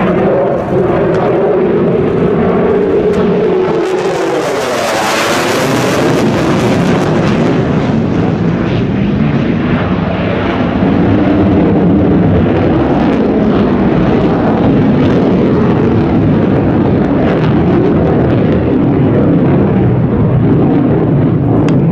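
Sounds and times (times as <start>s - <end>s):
jet engines roaring in afterburner: 0.0s - 21.9s.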